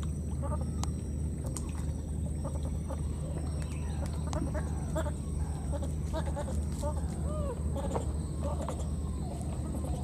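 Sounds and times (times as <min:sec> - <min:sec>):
low hum: 0:00.0 - 0:10.0
pitched animal calls: 0:02.4 - 0:10.0.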